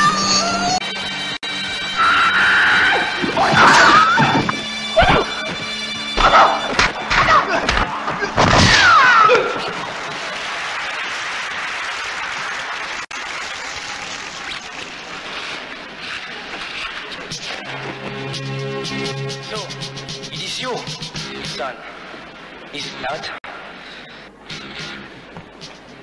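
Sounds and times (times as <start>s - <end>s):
crowd cheering: 0.0s - 18.2s
people shouting: 2.0s - 10.4s
punches and kicks landing: 3.3s - 9.8s.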